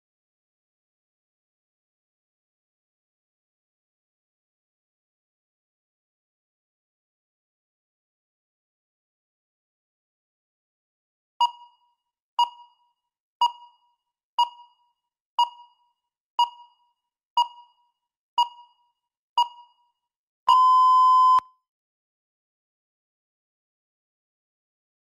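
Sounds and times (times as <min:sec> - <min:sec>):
short timer beeps: 0:11.4 - 0:12.8, 0:20.5 - 0:21.5
long timer beep: 0:20.5 - 0:21.5.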